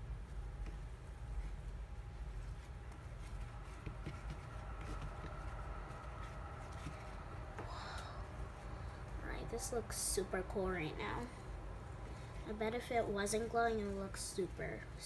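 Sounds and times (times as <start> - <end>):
steady low hum: 0.0 - 15.0
slime squishing: 0.1 - 11.3.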